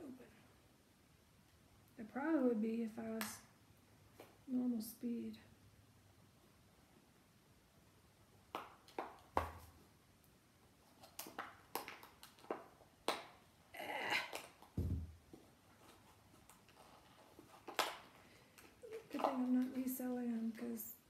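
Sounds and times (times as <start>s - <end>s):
packet crackling and crinkling: 10.8s - 13.4s, 15.4s - 20.8s.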